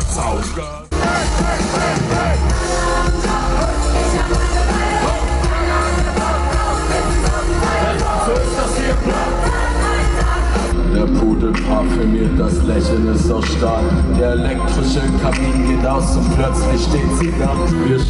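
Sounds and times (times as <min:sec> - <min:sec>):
heavy bass: 0:00.0 - 0:18.0
live band playing: 0:00.0 - 0:18.0
vocalist singing: 0:00.6 - 0:18.0.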